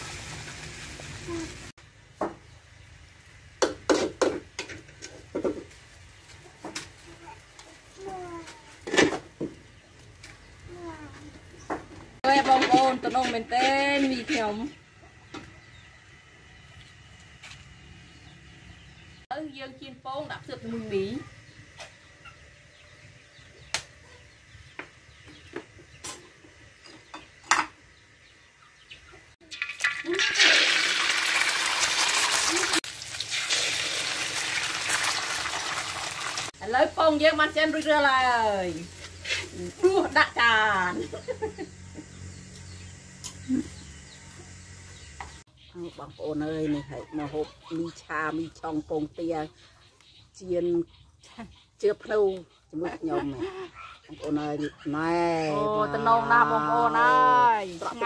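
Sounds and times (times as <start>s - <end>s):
metal spatula scraping a wok: 38.8s - 39.8s.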